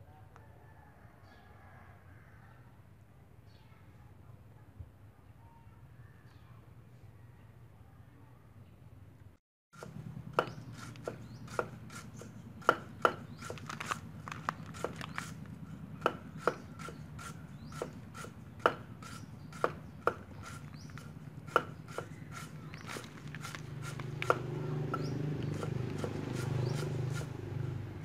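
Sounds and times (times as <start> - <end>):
cleaver chopping on wooden board: 9.8 - 13.7, 14.7 - 15.3, 16.0 - 27.3.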